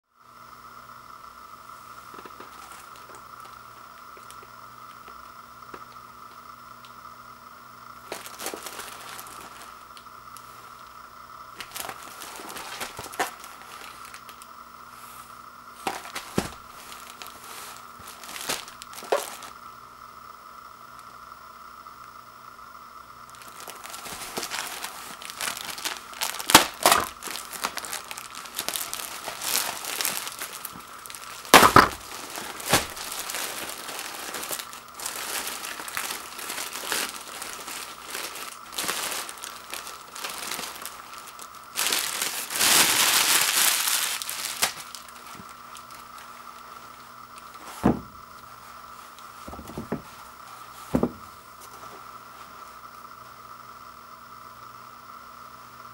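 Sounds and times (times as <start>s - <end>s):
plastic wrap crinkling: 1.9s - 7.0s, 8.0s - 14.5s, 15.7s - 19.7s, 23.3s - 52.6s
plastic wrap snapping: 2.1s - 7.0s, 8.0s - 10.5s, 11.6s - 14.5s, 15.8s - 19.6s, 23.3s - 48.5s.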